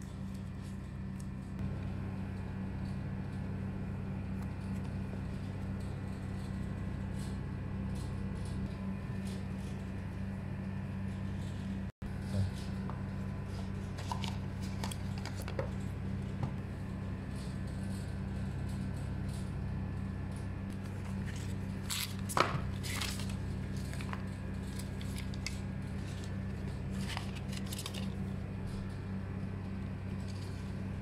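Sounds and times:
cardboard and paper rustling: 13.4s - 15.8s, 20.8s - 28.3s.

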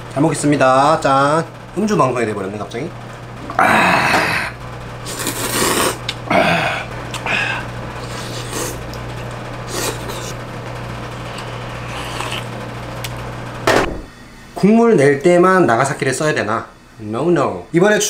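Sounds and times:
person slurping noodles: 3.6s - 8.8s, 9.7s - 10.4s, 11.3s - 12.5s
eating sounds: 5.0s - 10.4s, 11.2s - 13.2s.

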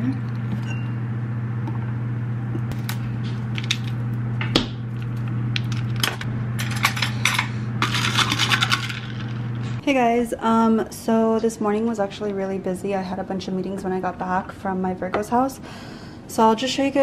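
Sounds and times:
steady low hum: 0.0s - 17.0s
ice cubes clinking into cup: 6.6s - 9.3s.

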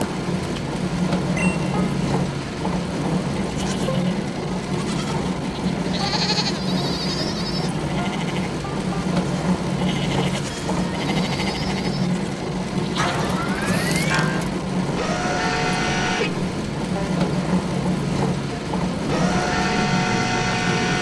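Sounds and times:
conveyor running: 0.0s - 21.0s
factory machinery hum: 0.0s - 21.0s
sheep bleating: 5.9s - 8.5s, 9.8s - 12.0s.

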